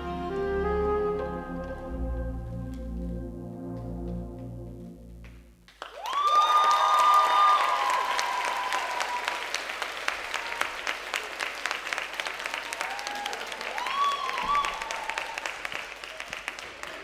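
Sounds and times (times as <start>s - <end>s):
audience applauding: 5.2s - 17.0s.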